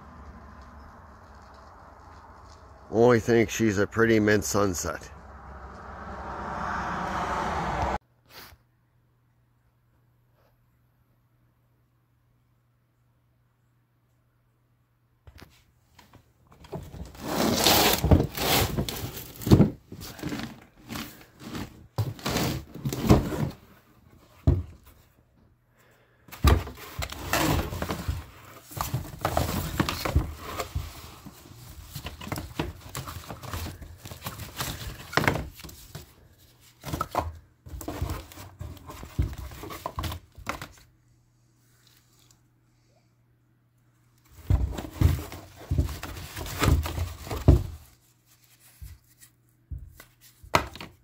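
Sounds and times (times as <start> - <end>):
cardboard tubes knocking and sliding: 16.5 - 25.1, 26.3 - 40.8, 44.3 - 47.9, 49.7 - 51.0.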